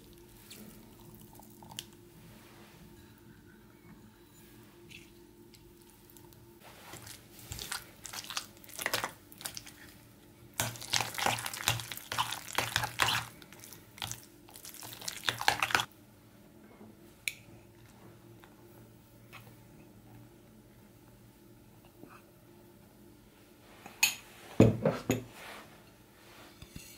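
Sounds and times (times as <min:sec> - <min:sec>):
fork stirring in ceramic bowl: 0:06.6 - 0:10.0, 0:10.6 - 0:15.9.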